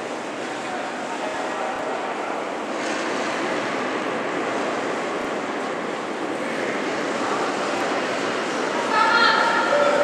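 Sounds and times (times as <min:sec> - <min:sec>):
steady rushing indoor hall noise: 0:00.0 - 0:10.0.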